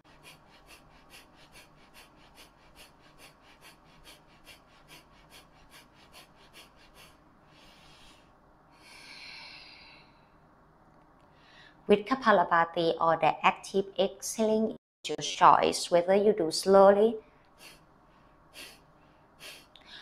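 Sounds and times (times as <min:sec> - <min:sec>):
rapid forceful nasal exhales: 0:00.0 - 0:10.0, 0:18.5 - 0:20.0
deep loud breath: 0:00.1 - 0:10.4.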